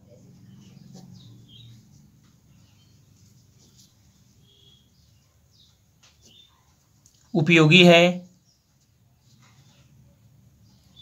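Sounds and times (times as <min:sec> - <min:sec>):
faint high chirps: 0:00.0 - 0:07.5.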